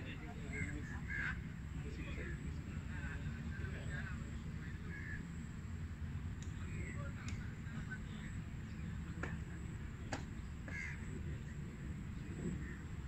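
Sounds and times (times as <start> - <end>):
faint distant calls: 0.0 - 13.0.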